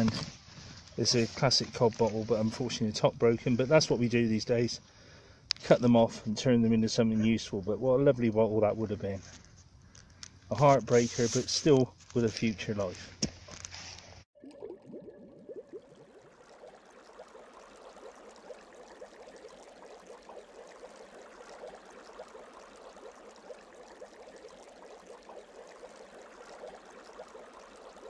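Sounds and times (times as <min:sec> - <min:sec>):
bubbling water fizzing: 0:14.4 - 0:28.0.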